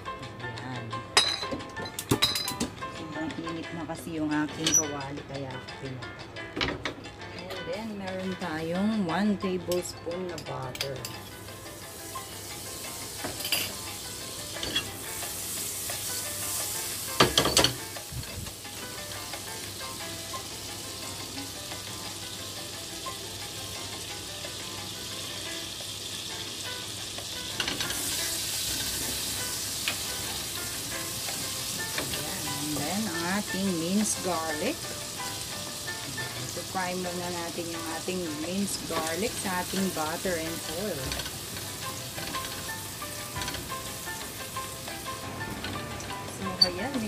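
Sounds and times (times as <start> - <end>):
butter sizzling in pan: 10.9 - 47.0.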